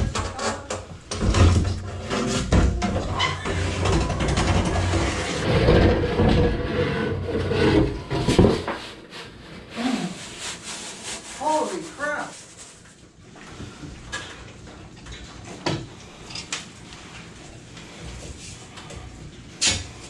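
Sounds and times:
scraping and rubbing: 0:00.0 - 0:13.2.

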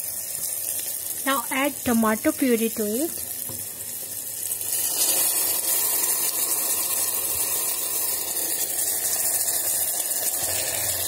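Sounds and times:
puree sizzling in hot oil: 0:00.0 - 0:11.0.

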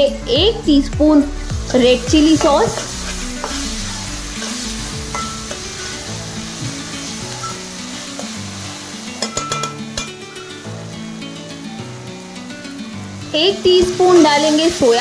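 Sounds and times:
vegetables sizzling in oil: 0:00.0 - 0:15.0
ladle stirring and scraping: 0:02.4 - 0:10.2.

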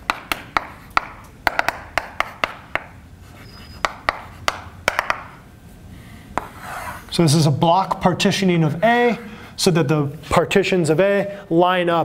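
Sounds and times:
chalk tapping on blackboard: 0:00.0 - 0:05.4, 0:06.4 - 0:07.0
chalk scratching: 0:02.1 - 0:04.6, 0:06.4 - 0:07.2
chalk squeak: 0:03.2 - 0:04.4.

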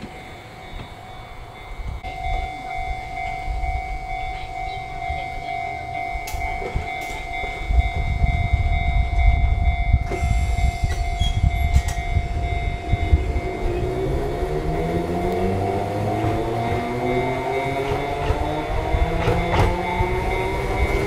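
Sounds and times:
train rumbling: 0:00.0 - 0:21.0
train motor whine rising: 0:10.0 - 0:21.0.

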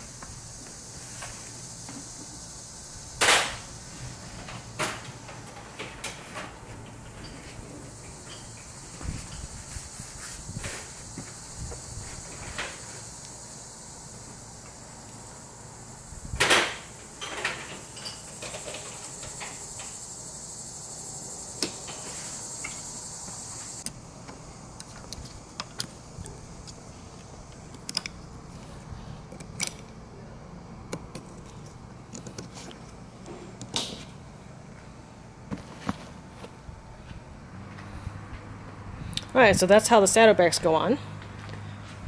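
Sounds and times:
high buzz: 0:07.1 - 0:27.4.

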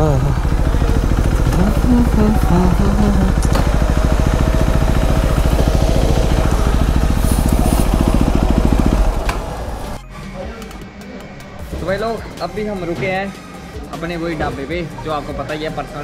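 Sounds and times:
motorcycle engine running: 0:00.0 - 0:10.0
wind rush: 0:03.4 - 0:10.0.

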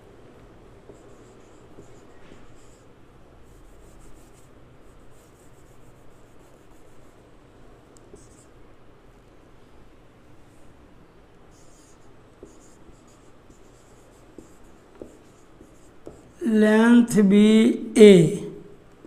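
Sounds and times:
marker pen writing on whiteboard: 0:00.8 - 0:07.2, 0:08.0 - 0:08.6, 0:11.5 - 0:16.4.

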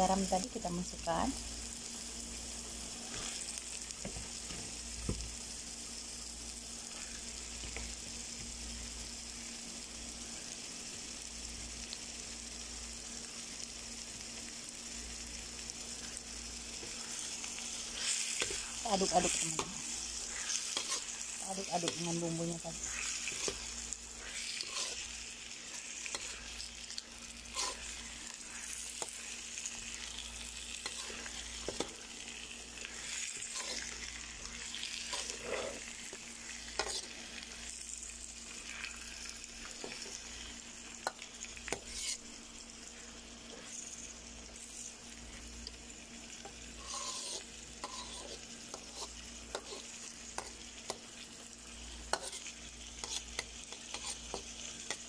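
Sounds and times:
food sizzling in a pan: 0:00.0 - 0:55.0
metal spoon scraping a pan: 0:17.9 - 0:22.1, 0:22.8 - 0:25.1, 0:27.5 - 0:29.2, 0:30.8 - 0:32.0, 0:32.9 - 0:34.0, 0:34.9 - 0:37.3, 0:41.0 - 0:42.3, 0:46.4 - 0:50.6, 0:52.1 - 0:55.0.

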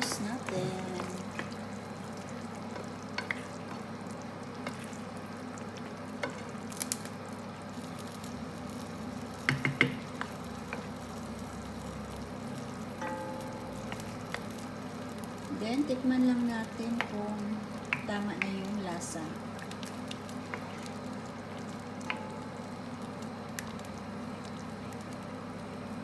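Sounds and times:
wooden spoon stirring sauce: 0:00.0 - 0:06.5, 0:16.9 - 0:21.8
sauce sizzling in a frying pan: 0:00.0 - 0:26.0
spoon knocking against pan: 0:09.4 - 0:10.3
low hum: 0:10.3 - 0:17.8.

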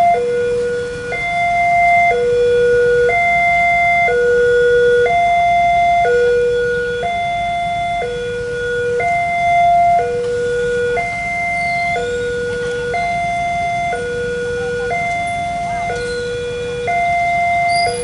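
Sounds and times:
level crossing two-tone alarm: 0:00.0 - 0:18.0.

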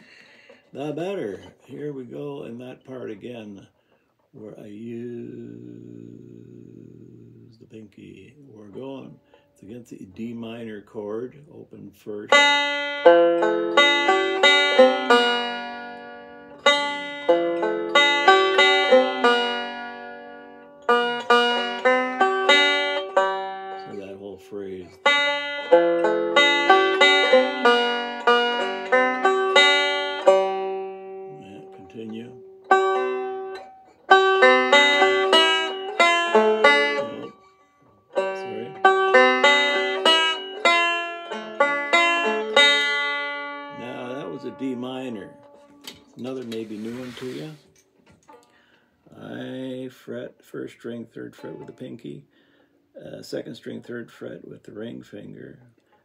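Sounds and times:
banjo picking melody: 0:00.0 - 0:56.0.

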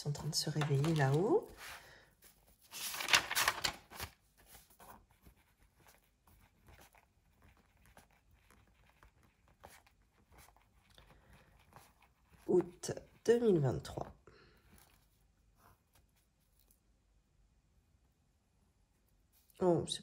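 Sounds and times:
rustle of hand and paper: 0:00.1 - 0:17.0, 0:19.0 - 0:19.6
felt-tip pen scratching on paper: 0:04.7 - 0:13.9.

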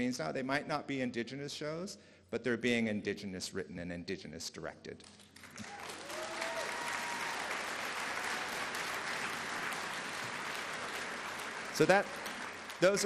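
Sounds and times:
audience applauding: 0:05.4 - 0:13.0
person whooping: 0:05.6 - 0:07.6.

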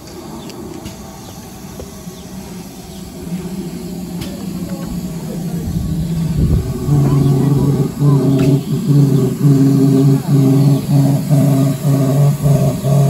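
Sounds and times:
steam locomotive rumbling: 0:00.0 - 0:13.0.

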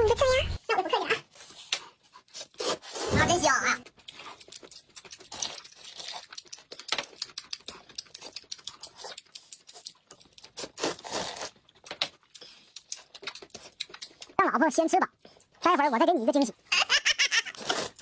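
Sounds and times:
people slurping noodles: 0:02.3 - 0:03.2, 0:04.2 - 0:11.6, 0:17.5 - 0:18.0.

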